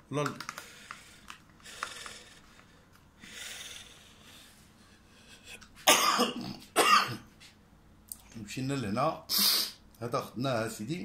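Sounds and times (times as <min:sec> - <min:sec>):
person coughing: 0:05.8 - 0:07.3.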